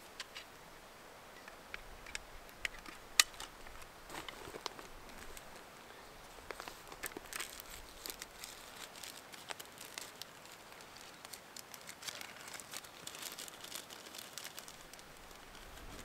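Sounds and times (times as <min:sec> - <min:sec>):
small sharp crackles: 0:01.4 - 0:05.7, 0:06.4 - 0:16.0
cloth tinder crinkling on foil: 0:04.1 - 0:05.6, 0:06.5 - 0:16.0.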